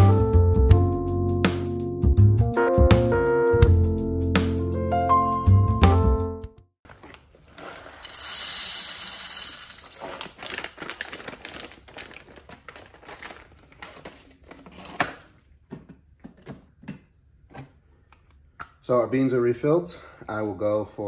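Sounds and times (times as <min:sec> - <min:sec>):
bag crinkling: 0:06.9 - 0:15.0
coffee beans pouring into hopper: 0:07.6 - 0:10.7.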